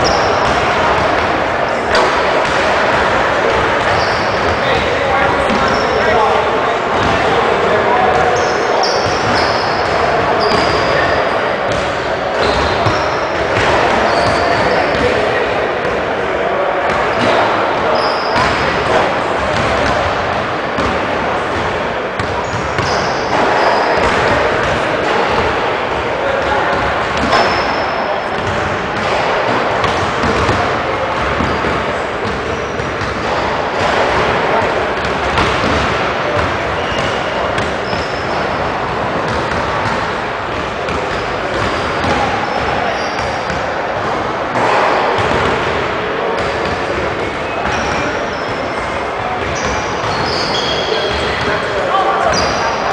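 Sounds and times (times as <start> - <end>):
shoe squeaks: 0.0 - 0.5, 3.8 - 4.6, 5.5 - 6.2, 8.3 - 11.3, 14.0 - 15.0, 17.2 - 18.6, 22.4 - 24.2, 27.2 - 28.5, 36.7 - 38.6, 42.4 - 43.5, 47.4 - 48.8, 49.5 - 51.5, 52.3 - 52.8
echoing hall noise: 0.0 - 52.9
basketballs bouncing on wooden floor: 1.9 - 6.1, 8.4 - 11.1, 11.7 - 15.3, 18.0 - 25.6, 26.4 - 51.5.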